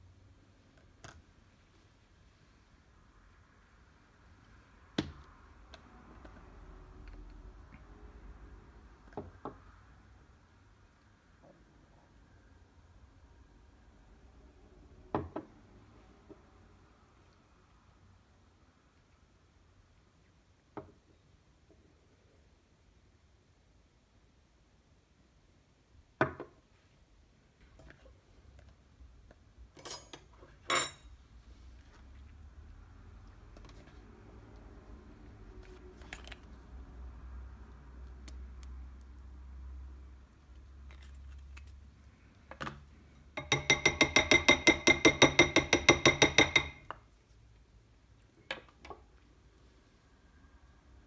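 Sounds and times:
kitchenware knocking on a counter: 0:43.4 - 0:46.8.

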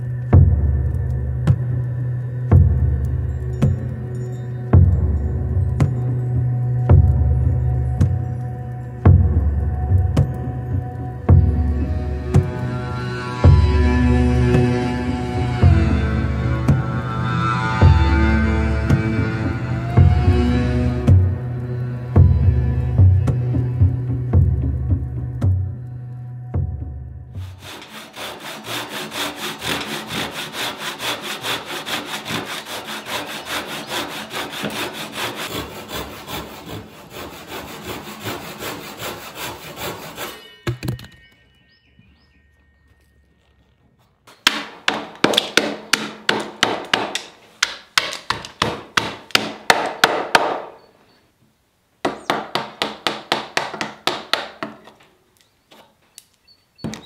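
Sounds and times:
hand sawing wood: 0:27.4 - 0:40.4
chisel knocking into wood: 0:52.0 - 0:54.8.

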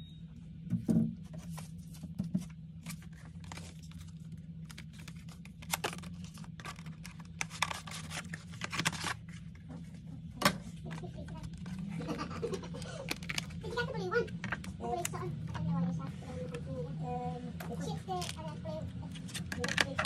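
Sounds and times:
low hum: 0:00.0 - 0:20.0
plastic film peeling crackling: 0:02.8 - 0:09.7, 0:10.8 - 0:15.2.

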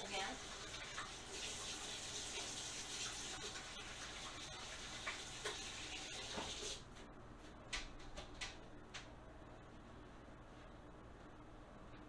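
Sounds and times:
tap running: 0:04.6 - 0:06.8.

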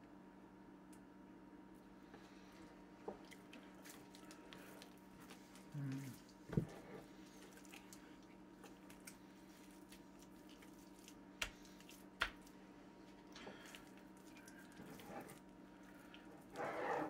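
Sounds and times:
faint steady hum: 0:00.0 - 0:17.0
wet squishing of raw meat: 0:03.1 - 0:16.6.

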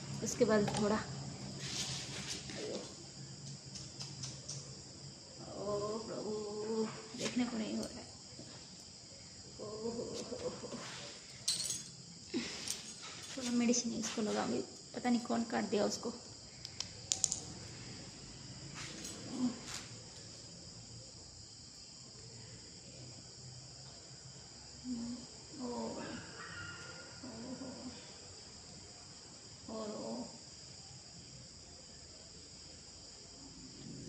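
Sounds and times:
crickets trilling: 0:00.0 - 0:34.0
faint clicks: 0:03.4 - 0:04.7
quiet vocal sounds: 0:09.1 - 0:11.2, 0:24.8 - 0:26.4, 0:27.1 - 0:28.3.

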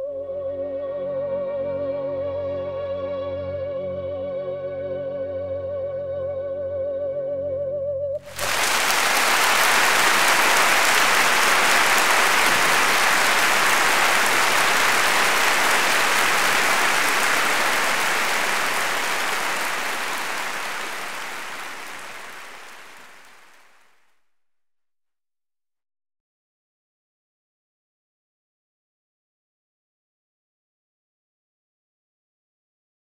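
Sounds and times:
audience applauding: 0:08.2 - 0:23.8.

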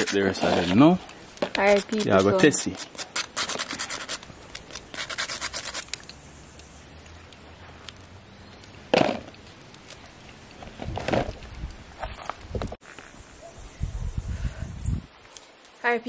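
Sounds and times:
knife scraping banana skin: 0:00.0 - 0:00.9, 0:01.6 - 0:06.1.

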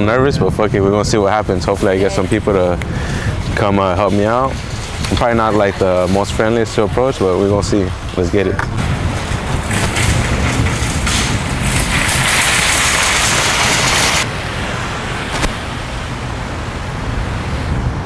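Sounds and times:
low engine rumble: 0:00.0 - 0:18.0
rushing hiss: 0:11.1 - 0:14.3.

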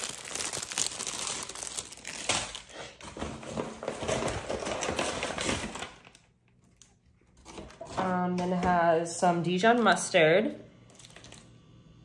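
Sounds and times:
plastic bag crinkling: 0:00.0 - 0:02.8.

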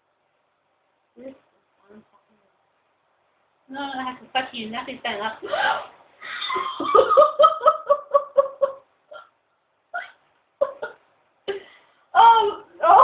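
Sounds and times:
woman laughing: 0:06.3 - 0:09.2, 0:10.0 - 0:11.0.

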